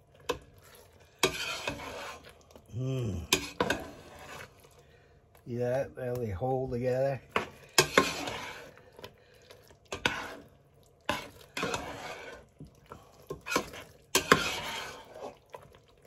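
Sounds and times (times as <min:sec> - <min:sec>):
metal spoon scraping pot: 0:01.0 - 0:02.4, 0:03.3 - 0:04.6, 0:07.3 - 0:08.8, 0:09.9 - 0:12.5, 0:13.3 - 0:15.4.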